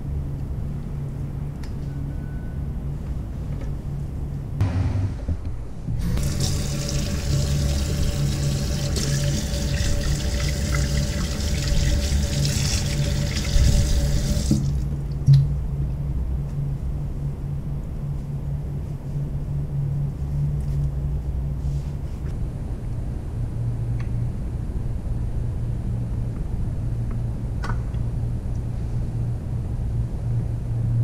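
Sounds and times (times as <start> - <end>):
low steady hum: 0.0 - 31.0
tap water splashing into sink: 6.2 - 15.5.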